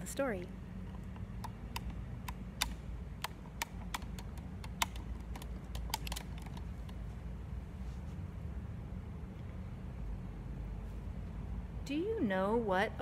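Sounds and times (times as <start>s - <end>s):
steady low hum: 0.0s - 13.0s
phone handling clicks and taps: 0.8s - 7.0s.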